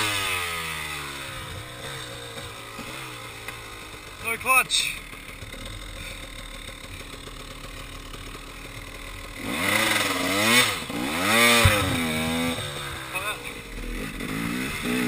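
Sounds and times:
dirt bike engine revving: 0:00.0 - 0:15.0
thump: 0:11.6 - 0:12.1.

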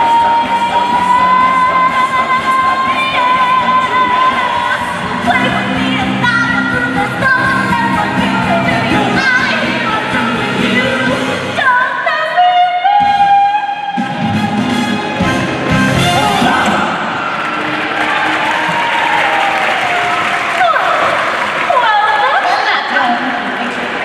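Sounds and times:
person singing: 0:00.0 - 0:17.1
backing music: 0:00.0 - 0:20.8.

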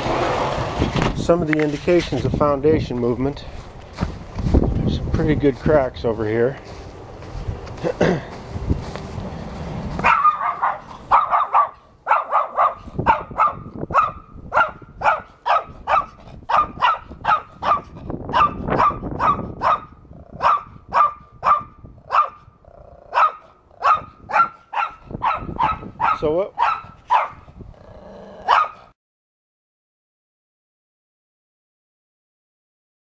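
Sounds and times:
small dog yapping: 0:10.0 - 0:22.4, 0:23.1 - 0:27.4, 0:28.4 - 0:28.9.

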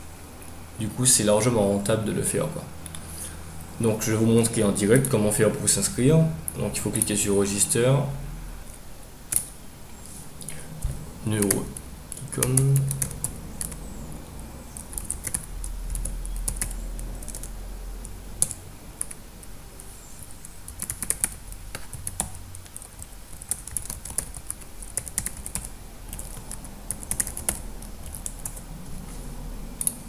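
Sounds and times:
computer keyboard typing: 0:11.3 - 0:14.0, 0:14.7 - 0:19.2, 0:20.2 - 0:28.7.

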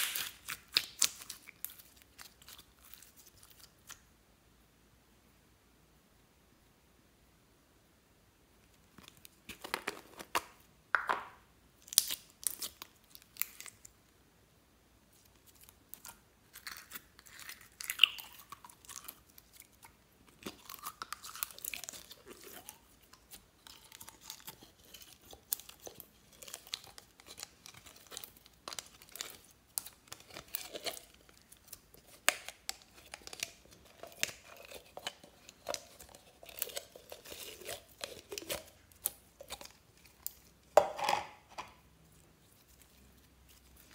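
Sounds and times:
slime crackling and popping: 0:00.0 - 0:04.0, 0:11.8 - 0:13.9, 0:15.3 - 0:40.8.

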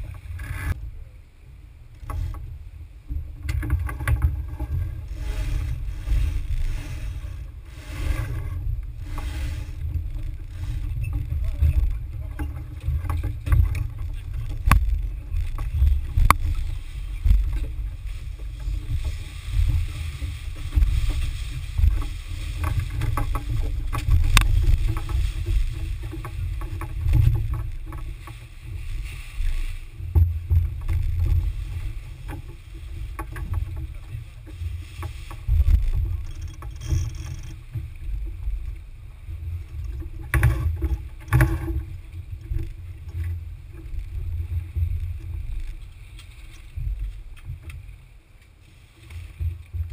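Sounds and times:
water along boat hull: 0:00.0 - 0:49.9
wind rumbling on microphone: 0:00.0 - 0:49.9
knocks and clicks of gear: 0:03.1 - 0:04.9, 0:11.1 - 0:19.8, 0:21.8 - 0:28.4.

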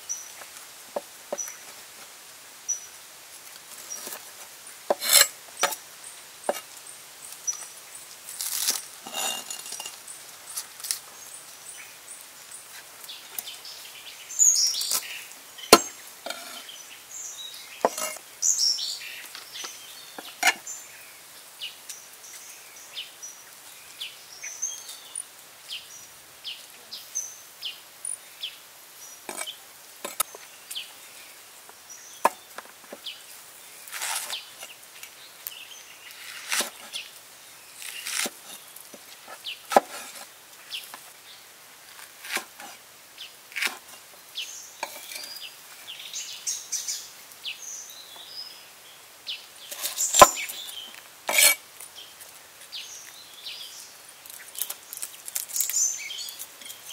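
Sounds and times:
cleaver cutting on wooden board: 0:04.9 - 0:05.8, 0:17.8 - 0:18.2, 0:51.3 - 0:51.6.

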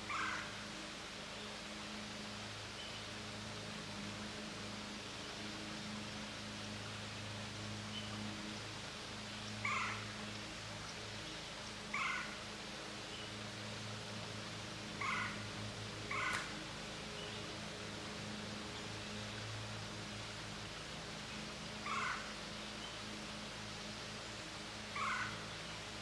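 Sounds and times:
animal calling: 0:09.6 - 0:10.0, 0:11.9 - 0:12.4, 0:15.0 - 0:15.4, 0:16.1 - 0:16.5, 0:25.0 - 0:25.4.

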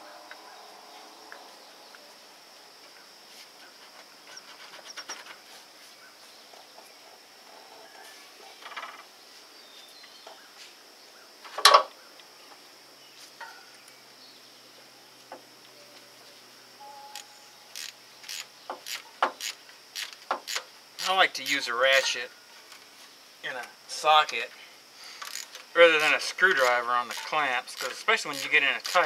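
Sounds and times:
insect chirring: 0:00.1 - 0:29.0
hand tools clicking and knocking: 0:17.8 - 0:22.2, 0:25.2 - 0:29.0.

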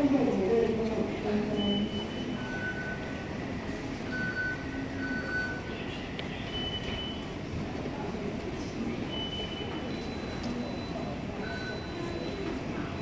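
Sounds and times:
station concourse background noise: 0:00.0 - 0:13.0
fare gate beeps: 0:01.6 - 0:03.3, 0:04.1 - 0:07.4, 0:09.1 - 0:13.0.

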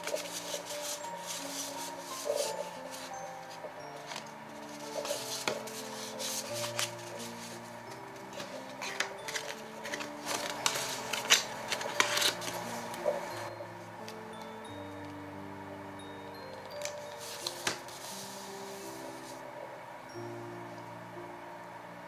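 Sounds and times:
card laid on book pages: 0:00.0 - 0:13.5, 0:16.7 - 0:19.4
paper cards rustling: 0:00.0 - 0:13.5, 0:16.7 - 0:19.4
soft background music: 0:00.0 - 0:22.0.

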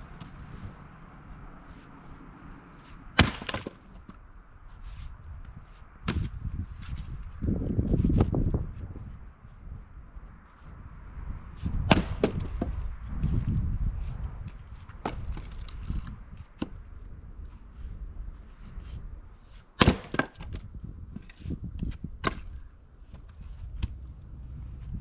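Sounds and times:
axe splitting wood: 0:03.2 - 0:04.2, 0:06.0 - 0:06.3, 0:11.8 - 0:12.8, 0:14.9 - 0:16.9, 0:19.8 - 0:24.0.

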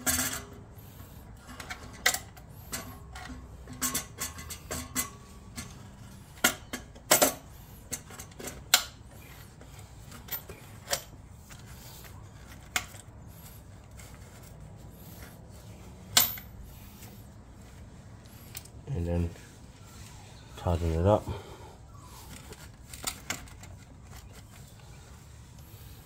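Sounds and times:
metal exhaust parts clinking: 0:00.0 - 0:17.2.

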